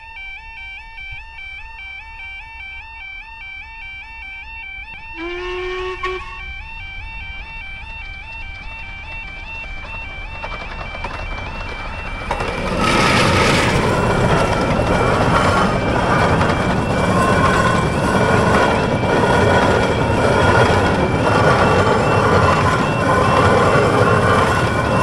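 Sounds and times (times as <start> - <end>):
two-tone crossing alarm: 0.0 - 25.0
train wheels rumbling on rails: 5.0 - 25.0.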